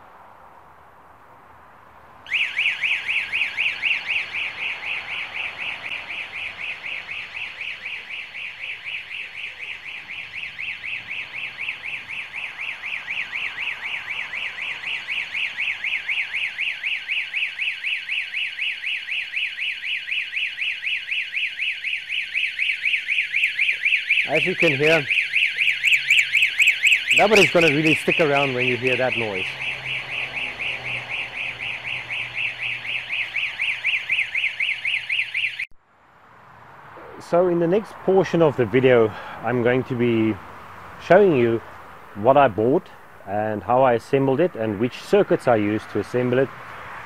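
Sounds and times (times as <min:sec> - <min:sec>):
warbling alarm siren: 0:02.3 - 0:35.8.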